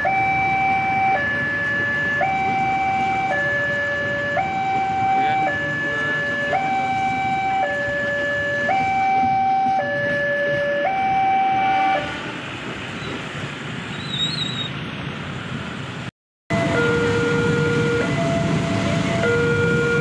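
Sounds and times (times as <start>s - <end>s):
level-crossing alarm: 0.0s - 12.1s, 16.5s - 20.0s
two-tone electronic alarm: 0.0s - 12.1s, 16.5s - 20.0s
train rumbling: 0.0s - 20.0s.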